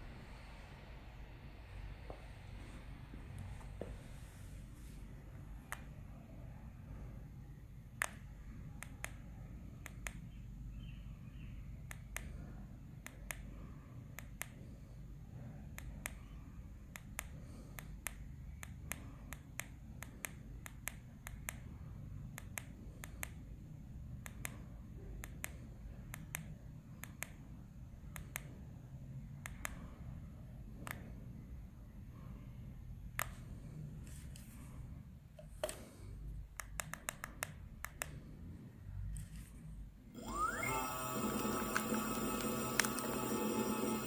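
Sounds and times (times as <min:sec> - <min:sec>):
low steady hum: 0:00.0 - 0:44.0
push buttons clicking: 0:40.2 - 0:44.0.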